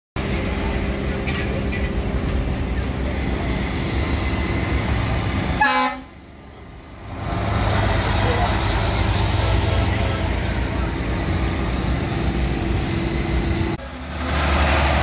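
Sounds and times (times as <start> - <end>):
trucks rumbling past: 0.2 - 15.0
air horn toot: 5.6 - 6.2.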